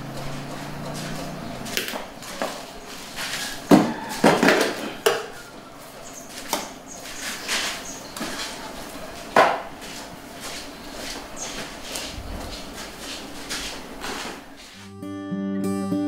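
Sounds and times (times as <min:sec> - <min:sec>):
hard objects knocking and clattering: 0:03.7 - 0:05.3.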